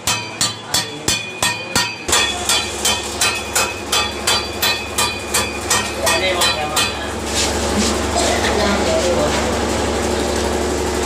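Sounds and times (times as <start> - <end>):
hammer striking steel chisel: 0.0 - 7.2.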